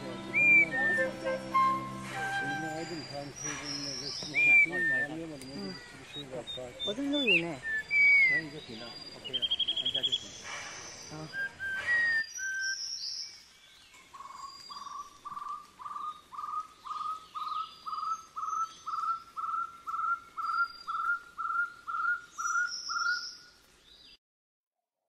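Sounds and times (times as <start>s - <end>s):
bird calling rising notes: 0.0s - 13.1s
high bird chirps: 0.0s - 24.2s.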